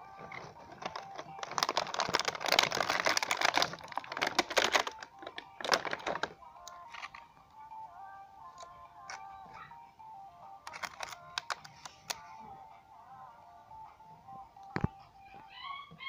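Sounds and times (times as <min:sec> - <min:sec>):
plastic packaging crinkling: 0:00.2 - 0:07.2, 0:10.7 - 0:12.2.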